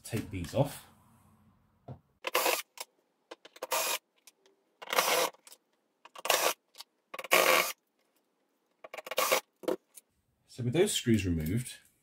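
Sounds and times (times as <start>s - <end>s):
cordless drill whirring: 2.3s - 2.7s, 3.6s - 4.0s, 4.9s - 5.3s.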